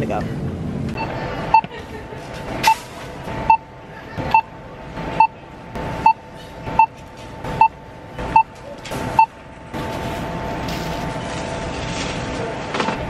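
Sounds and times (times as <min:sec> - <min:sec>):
barcode scanner beeping: 0:03.4 - 0:03.7.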